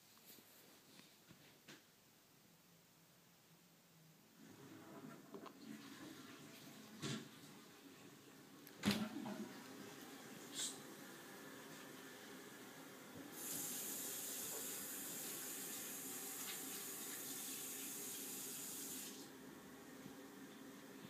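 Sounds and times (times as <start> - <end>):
running water hiss: 9.8 - 19.4.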